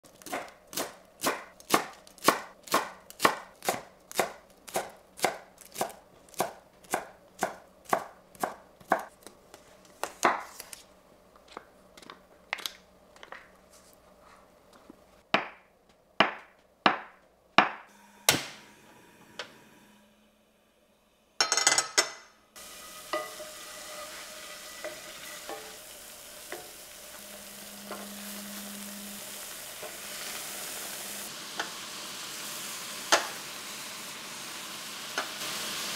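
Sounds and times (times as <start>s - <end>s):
tofu sizzling in frying pan: 22.6s - 35.9s.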